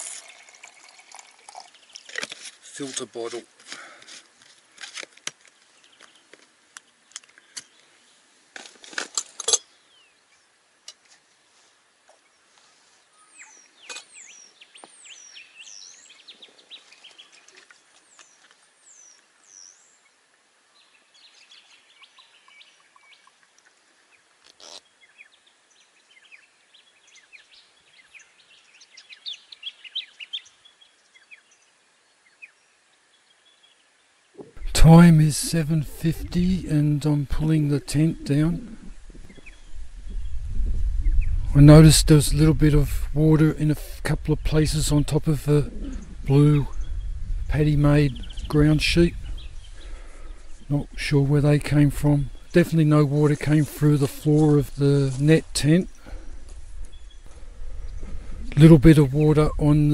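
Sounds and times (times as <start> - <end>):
birds whistling and chirping: 13.1 - 17.3.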